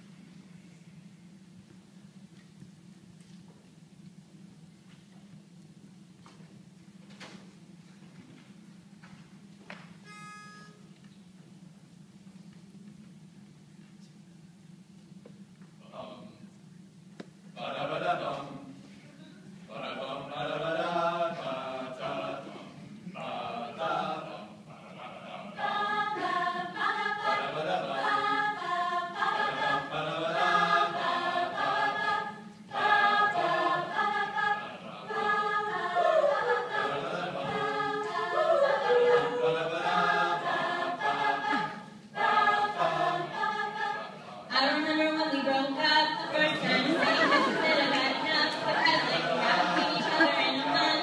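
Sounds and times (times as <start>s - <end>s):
a cappella group singing: 17.6s - 18.9s, 19.6s - 51.0s.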